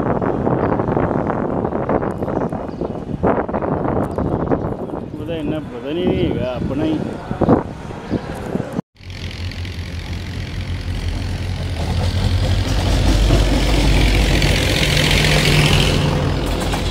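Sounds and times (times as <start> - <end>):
locomotive engine droning: 8.4 - 16.9.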